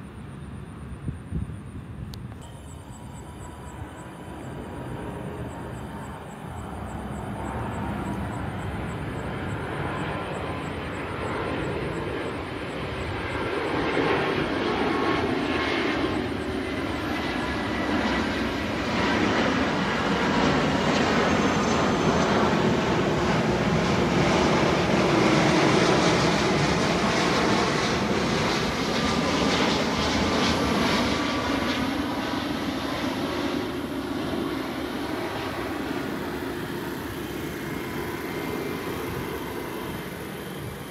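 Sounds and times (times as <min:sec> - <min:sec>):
jet airliner engine roar: 0:00.0 - 0:40.9.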